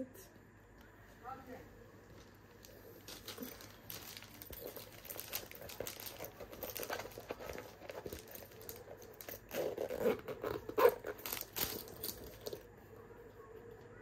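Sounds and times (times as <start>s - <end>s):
plastic packaging crinkling: 2.2s - 12.7s.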